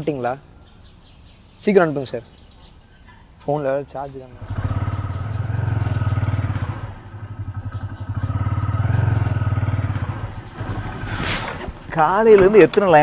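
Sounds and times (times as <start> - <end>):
motorcycle engine running: 4.4 - 11.1.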